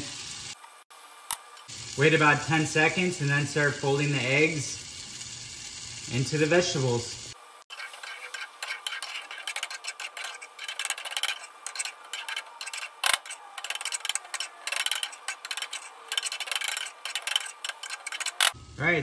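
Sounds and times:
light sizzle of frying: 0.0 - 18.9
spatula scraping a skillet: 7.7 - 18.6.

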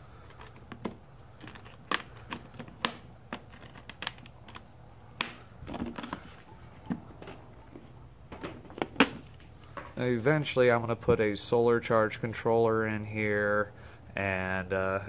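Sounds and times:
carrying case clicks and knocks: 0.3 - 4.6.

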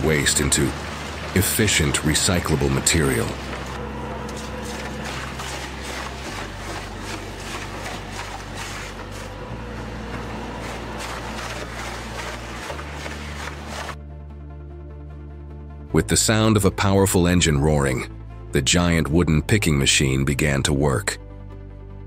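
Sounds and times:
wood shredder grinding wood: 0.0 - 14.0
low bass note music: 0.0 - 19.8.

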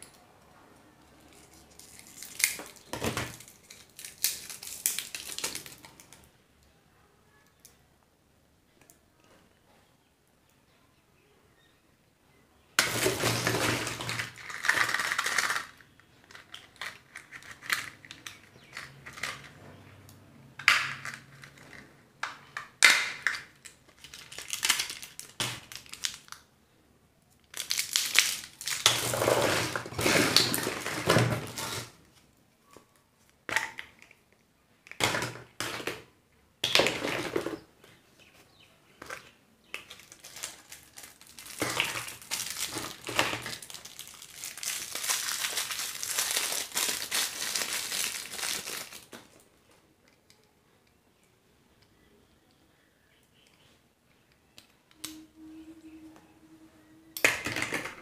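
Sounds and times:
foil and plastic wrapper crinkling: 1.3 - 6.2, 12.8 - 19.3, 23.6 - 26.4, 27.4 - 32.0, 39.8 - 49.4.

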